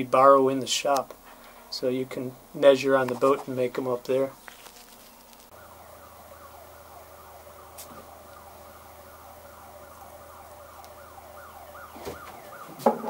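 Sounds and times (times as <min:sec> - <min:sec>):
steady low hum: 0:00.0 - 0:12.8
faint siren wailing: 0:05.5 - 0:13.0.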